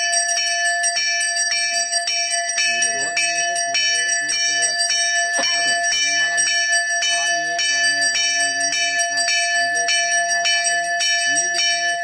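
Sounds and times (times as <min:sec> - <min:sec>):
temple bell ringing: 0:00.0 - 0:12.0
low voice chanting: 0:02.6 - 0:12.0.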